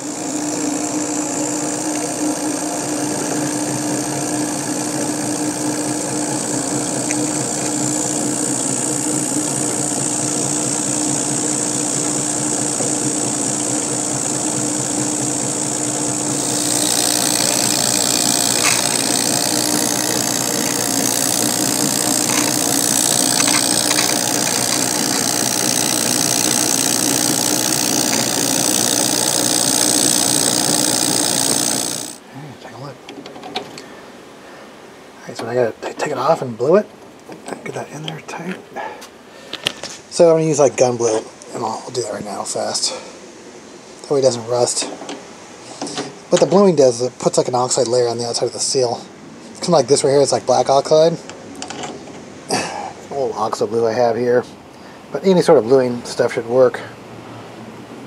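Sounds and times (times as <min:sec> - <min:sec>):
milling machine motor hum: 0:00.0 - 0:32.2.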